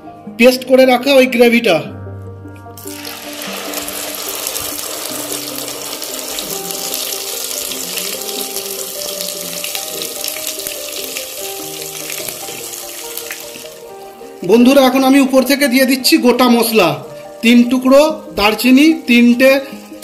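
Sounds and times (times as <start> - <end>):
oil sizzling and crackling: 2.8 - 14.4.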